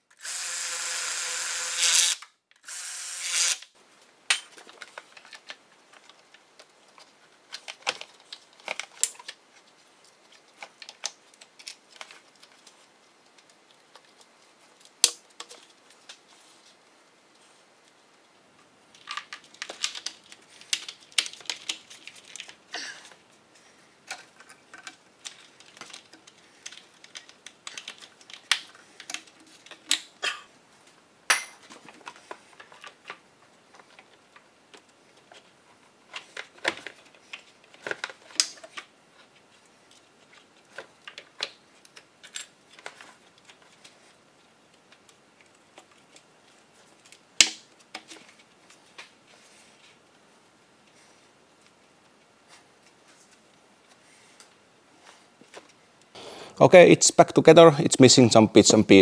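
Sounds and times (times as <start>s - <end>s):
plastic and metal parts clicking: 19.0s - 22.6s, 24.1s - 30.1s.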